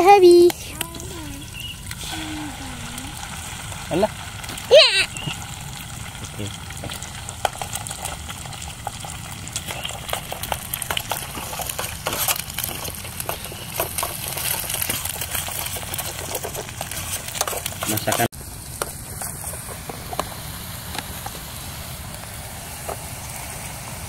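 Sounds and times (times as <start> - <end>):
egg sizzling in a pan: 0.0 - 24.0
metal spoon scraping a pan: 9.7 - 18.3.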